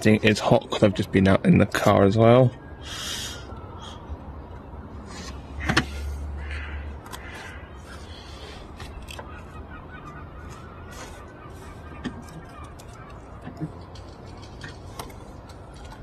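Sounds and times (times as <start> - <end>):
clicks and rustling: 10.1 - 16.0.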